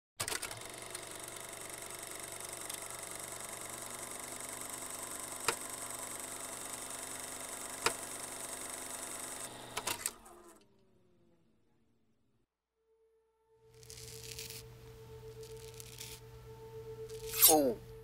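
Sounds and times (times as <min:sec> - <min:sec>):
film projector running: 0:00.2 - 0:10.8.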